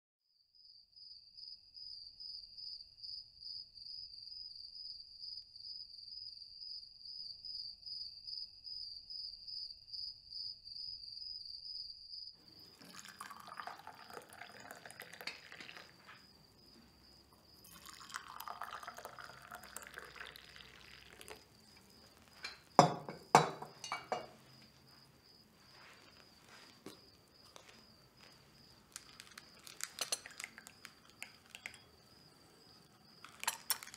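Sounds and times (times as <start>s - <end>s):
tea pouring into cups: 12.4s - 33.9s
china clinking: 12.6s - 16.2s, 17.6s - 24.5s, 26.7s - 33.9s.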